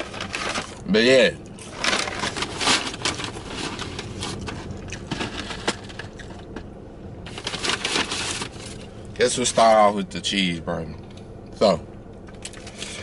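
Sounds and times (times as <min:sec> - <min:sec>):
paper bag crinkling: 0:00.0 - 0:06.6, 0:07.3 - 0:08.9.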